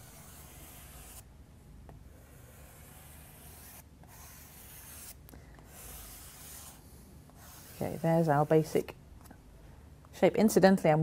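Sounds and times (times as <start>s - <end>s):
charcoal scratching on paper: 0.0s - 1.2s, 2.2s - 6.8s, 7.4s - 8.9s.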